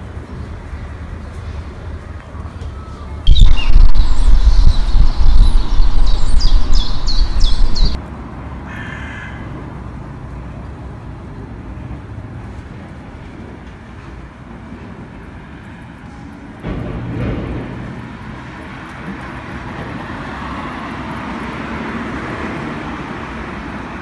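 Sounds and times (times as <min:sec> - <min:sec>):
bird call: 0:02.8 - 0:08.0
loud low rumble: 0:03.3 - 0:08.0.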